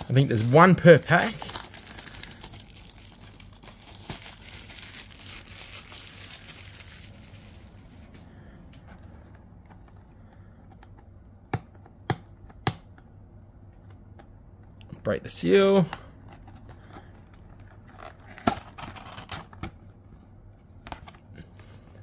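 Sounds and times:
plastic shrink-wrap crinkling: 0.0 - 8.3.

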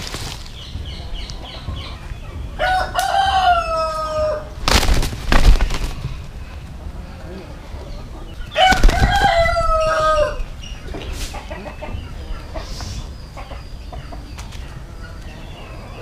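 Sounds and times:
rooster crowing: 2.6 - 4.5, 8.6 - 10.5.

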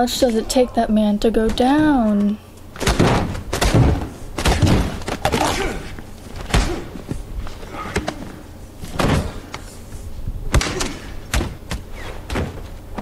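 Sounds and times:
heavy punches and thuds: 2.8 - 7.1, 8.9 - 9.5, 10.5 - 12.7.

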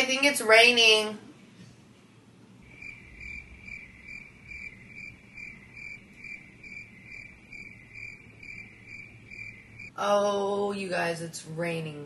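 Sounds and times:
cricket chirping: 2.6 - 9.9.

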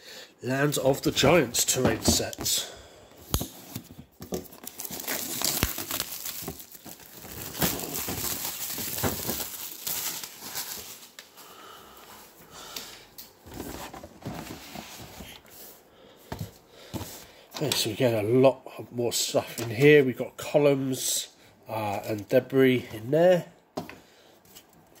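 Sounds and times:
shrink-wrap crinkling and tearing: 4.4 - 11.3.

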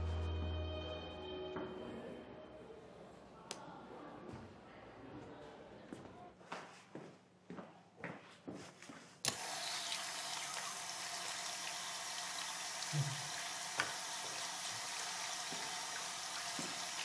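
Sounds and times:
tap turned on: 9.3 - 17.0
water running into a sink: 9.3 - 17.0.

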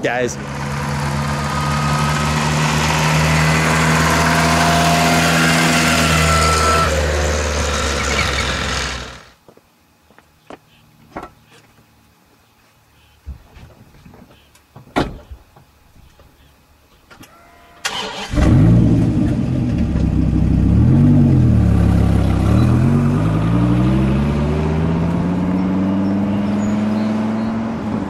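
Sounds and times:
car engine starting and accelerating: 0.4 - 9.3, 17.8 - 28.0.

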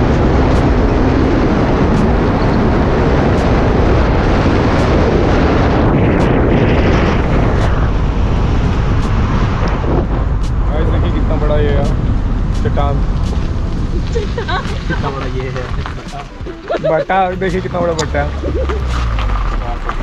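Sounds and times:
car road and engine noise: 0.0 - 20.0
wind buffeting microphone: 0.0 - 20.0.

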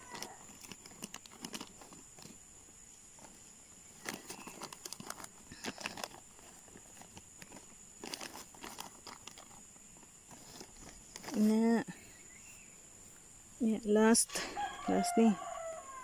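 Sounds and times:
plastic bags crinkling: 0.0 - 2.4, 3.1 - 11.6
soil scraping: 0.0 - 11.8.

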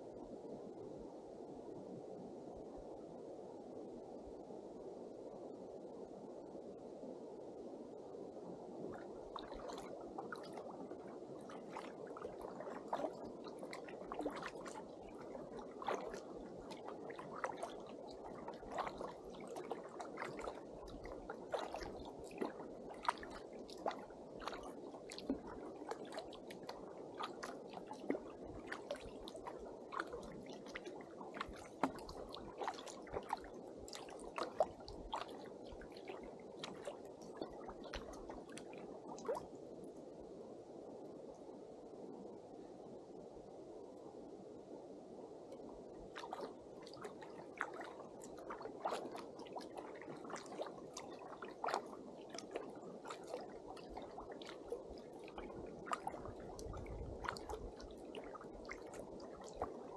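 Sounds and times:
water lapping against kayak hull: 8.8 - 39.6, 46.0 - 59.9
paddle splashes and drips: 8.8 - 40.0, 45.5 - 59.9.

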